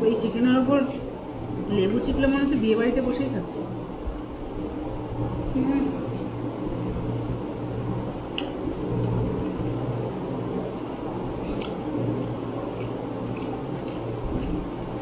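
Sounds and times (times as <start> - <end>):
electric fan humming: 0.0 - 15.0
eating mouth sounds: 11.4 - 15.0.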